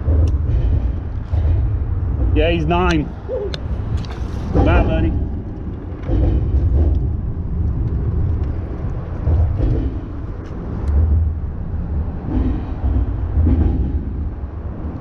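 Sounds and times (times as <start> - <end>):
traffic rumbling over a bridge: 0.0 - 15.0.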